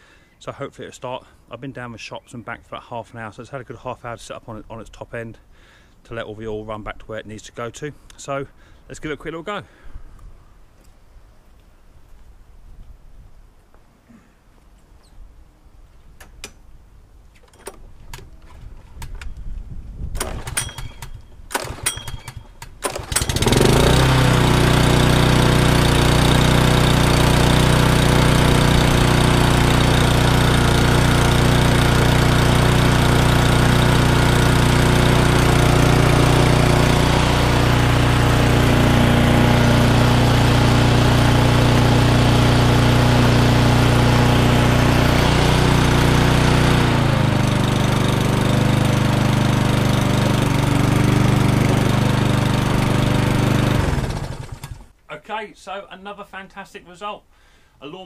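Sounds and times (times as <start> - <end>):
lawnmower engine running: 20.2 - 55.0.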